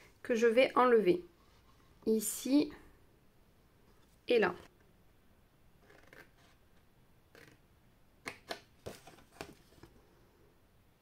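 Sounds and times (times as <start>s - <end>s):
card rustling: 8.3s - 10.0s.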